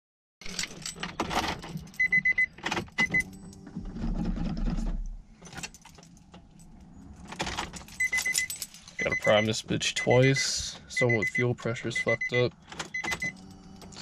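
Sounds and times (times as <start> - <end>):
keys jangling in ignition: 0.4 - 9.6, 12.6 - 14.0
high warning chime beeping: 2.0 - 3.6, 8.0 - 13.8.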